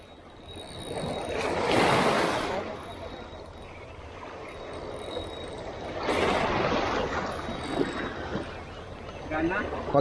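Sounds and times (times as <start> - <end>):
sea water splashing over rocks: 1.4 - 2.8.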